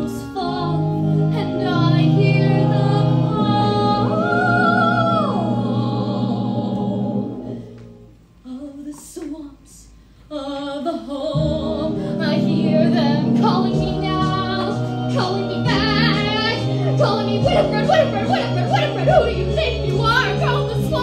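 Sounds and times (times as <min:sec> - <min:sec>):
woman singing: 0:00.0 - 0:06.4, 0:08.5 - 0:21.0
instrumental accompaniment: 0:11.4 - 0:21.0.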